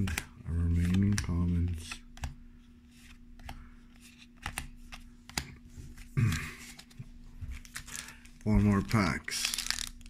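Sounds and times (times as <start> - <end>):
cards clicking and slapping: 0.0 - 2.4, 3.0 - 5.6, 7.6 - 10.0
foil pack rustling: 7.6 - 10.0.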